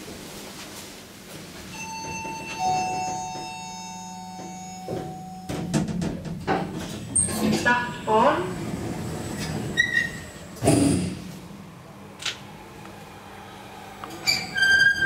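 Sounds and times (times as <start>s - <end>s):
elevator drive humming: 1.6s - 15.0s
knocks and clunks: 4.4s - 7.7s.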